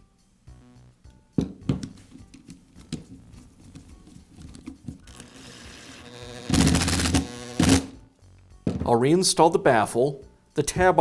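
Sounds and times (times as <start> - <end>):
cordless screwdriver whirring: 5.1 - 8.0.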